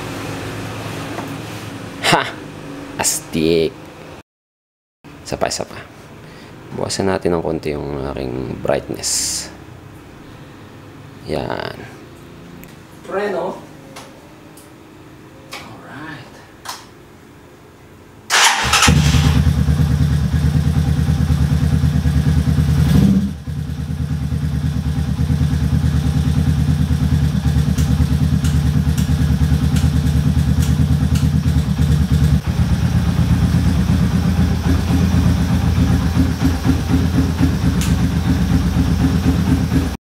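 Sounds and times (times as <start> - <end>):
motorcycle engine idling: 18.9 - 40.0.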